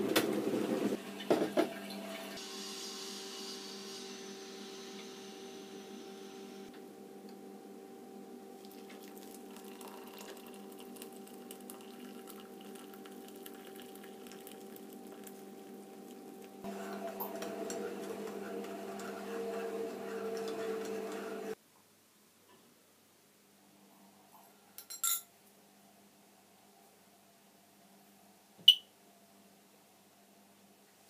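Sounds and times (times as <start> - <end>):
water trickling into a mug: 8.6 - 16.6
spoon clinking against mug: 24.8 - 25.2.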